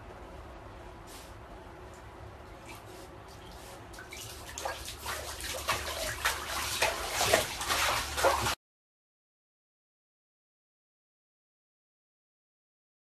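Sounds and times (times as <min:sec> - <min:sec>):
dog splashing in water: 0:03.5 - 0:08.6.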